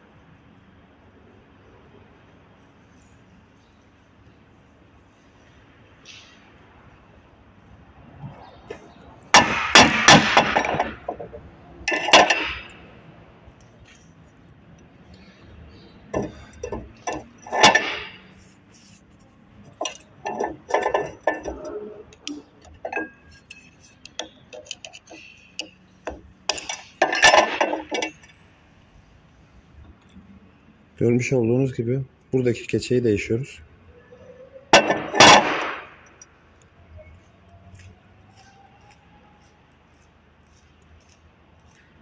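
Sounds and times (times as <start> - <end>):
metal parts clinking and knocking: 9.3 - 12.8, 16.1 - 28.4, 34.8 - 36.3.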